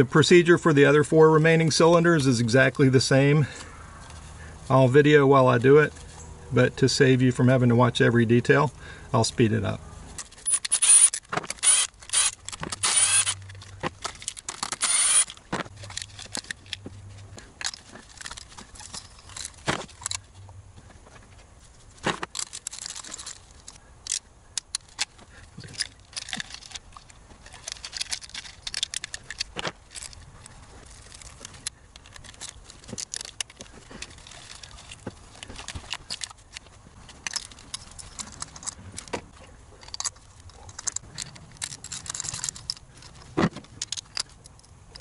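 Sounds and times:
tools clinking and scraping: 10.1s - 45.0s
cordless screwdriver bursts: 10.5s - 13.4s, 14.6s - 15.4s.

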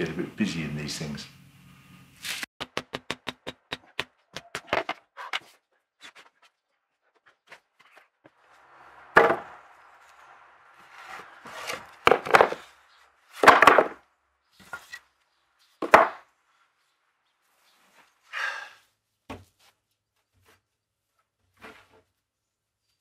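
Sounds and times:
wooden knocks: 2.6s - 5.0s
wood scraping: 7.2s - 14.0s.

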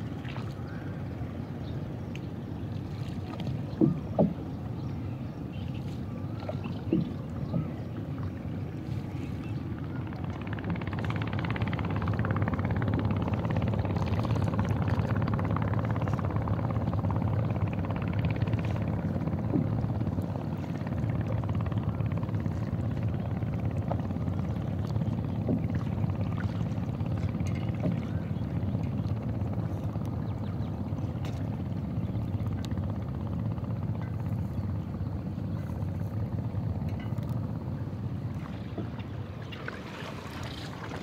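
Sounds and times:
boat engine droning: 0.0s - 41.0s
water splashing against hull: 0.0s - 41.0s.

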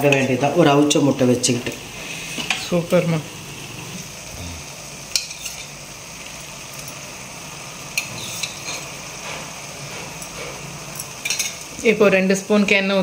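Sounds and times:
simmering pan hiss: 0.0s - 13.0s
metal spoon clinking on pan: 5.1s - 5.7s, 10.1s - 11.6s.

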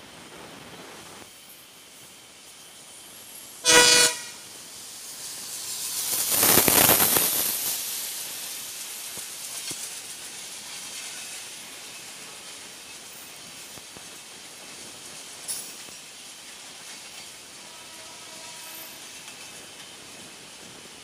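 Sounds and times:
diesel locomotive passing: 0.2s - 15.5s, 16.1s - 21.0s
train horn blast: 3.6s - 4.4s, 17.6s - 19.0s.

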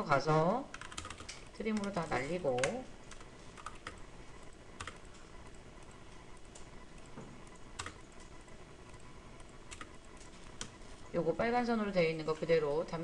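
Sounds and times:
keyboard and mouse clicks: 0.8s - 1.9s.

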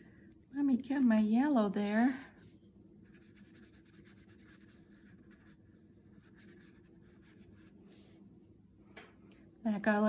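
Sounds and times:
low room hum: 0.0s - 10.0s
brush scratching on paper: 1.8s - 2.4s, 3.0s - 8.2s.

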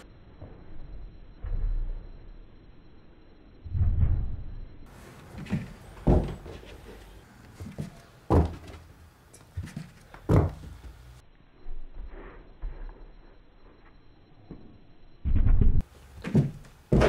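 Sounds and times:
cats landing with dull thumps: 7.6s - 8.8s, 9.6s - 11.0s.

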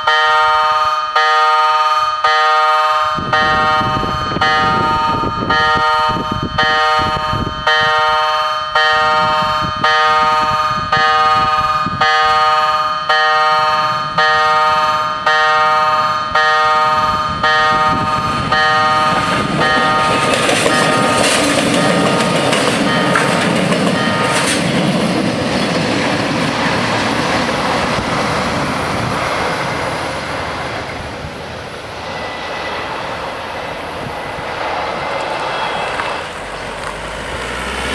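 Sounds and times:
level-crossing warning bells: 0.0s - 25.9s
loud rushing rumble: 3.2s - 7.7s, 9.0s - 37.9s.

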